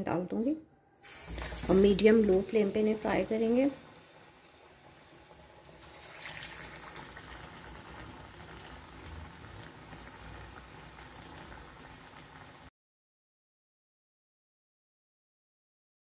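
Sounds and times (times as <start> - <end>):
food deep-frying in oil: 1.0 - 12.7.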